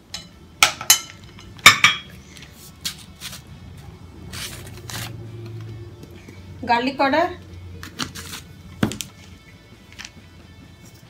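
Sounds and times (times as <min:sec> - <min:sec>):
ceramic bowls clinking: 0:00.1 - 0:02.2
plastic jar knocks and rustles: 0:08.8 - 0:09.2.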